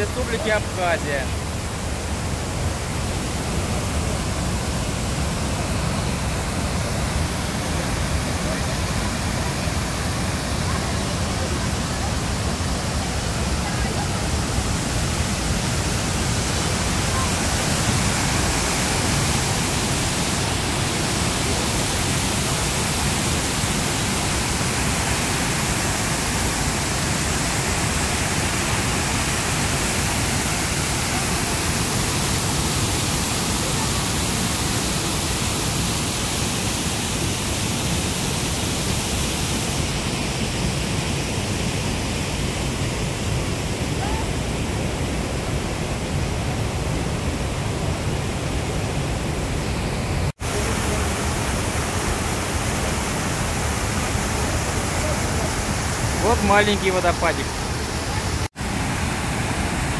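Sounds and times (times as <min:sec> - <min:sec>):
waterfall pouring into pool: 0:00.0 - 0:42.1, 0:50.3 - 0:59.9.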